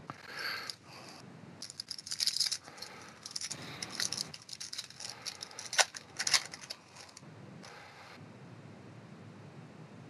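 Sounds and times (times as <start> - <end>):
foil wrapper crinkling and tearing: 1.6 - 7.2.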